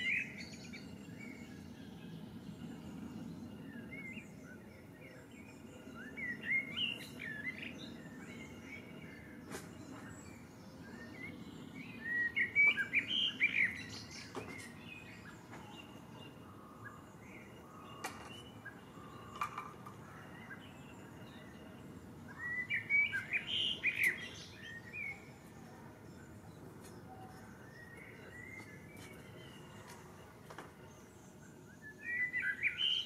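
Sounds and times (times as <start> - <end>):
low outdoor background hiss: 0.0 - 33.0
songbird singing: 0.0 - 33.0.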